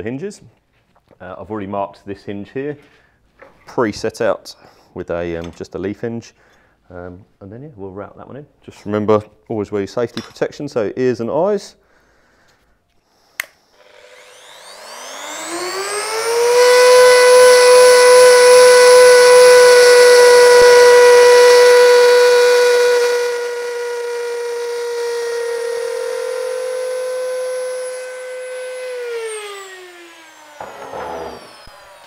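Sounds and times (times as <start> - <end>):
trim router whining: 13.1 - 32.0.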